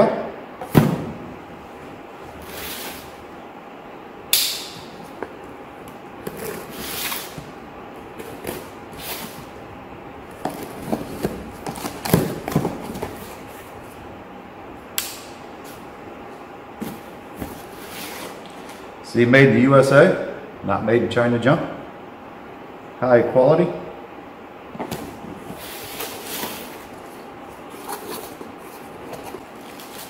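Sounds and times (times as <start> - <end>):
cardboard flaps rustling: 10.2 - 14.0, 24.7 - 30.0.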